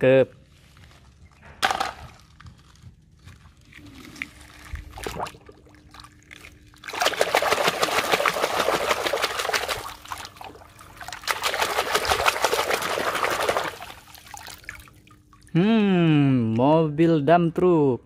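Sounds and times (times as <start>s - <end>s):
water splashing in metal basin: 4.9s - 15.5s.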